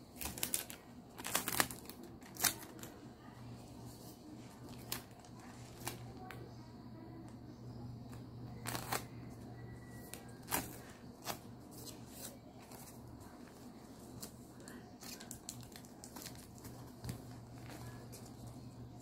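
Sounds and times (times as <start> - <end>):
steady low hum: 0.0 - 19.0
plastic wrapping crackling: 0.1 - 3.0, 4.2 - 6.4, 8.6 - 9.2, 9.9 - 19.0.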